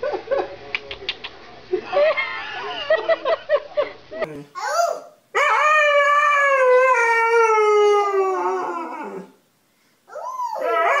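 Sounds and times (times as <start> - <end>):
dog howling: 4.6 - 9.4, 10.1 - 11.0.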